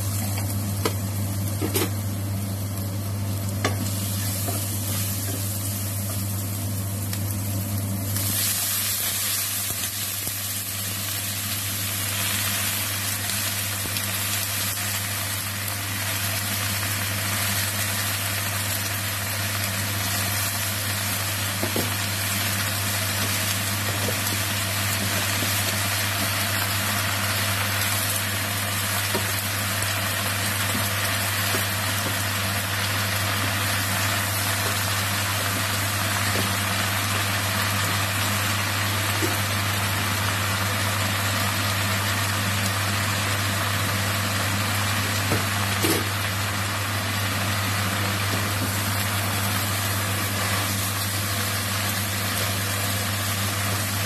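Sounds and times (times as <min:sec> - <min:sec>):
frying sizzle in wok: 0:00.0 - 0:54.0.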